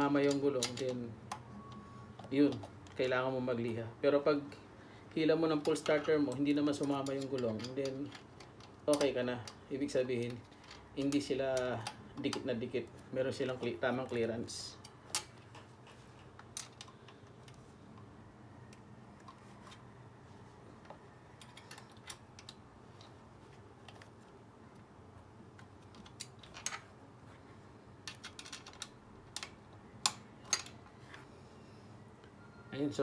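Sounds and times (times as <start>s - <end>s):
metallic clicks of screws and hand tool: 0.0s - 1.4s, 5.5s - 9.6s, 21.4s - 23.1s.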